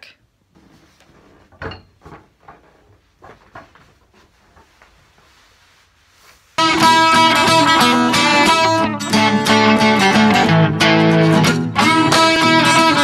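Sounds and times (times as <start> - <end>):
faint knocks and bumps: 0.6 - 5.5
loud guitar music: 6.6 - 13.0.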